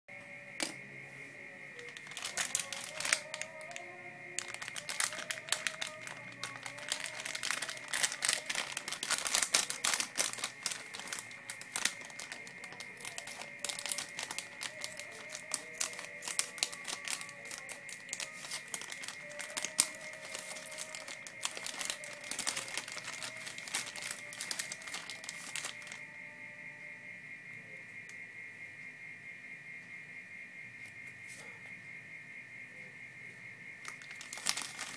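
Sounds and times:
plastic packaging crinkling: 0:01.8 - 0:26.0, 0:33.8 - 0:34.9.

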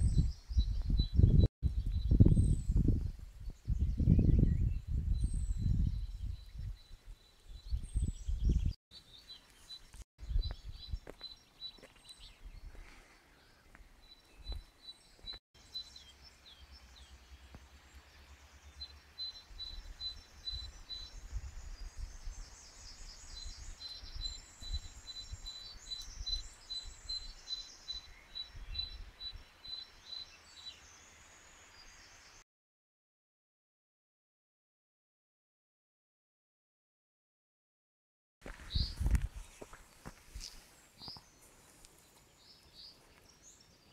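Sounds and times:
low wind rumble on microphone: 0:00.0 - 0:08.8, 0:10.2 - 0:11.1, 0:19.5 - 0:29.5, 0:38.6 - 0:39.7
songbirds singing: 0:00.0 - 0:32.4, 0:38.5 - 0:43.9.

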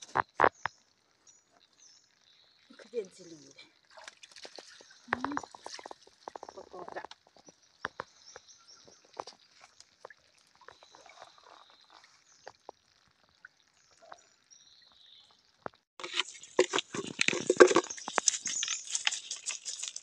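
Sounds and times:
water dripping: 0:00.0 - 0:20.0
fish splashing in a bucket: 0:03.8 - 0:08.2, 0:16.0 - 0:20.0.

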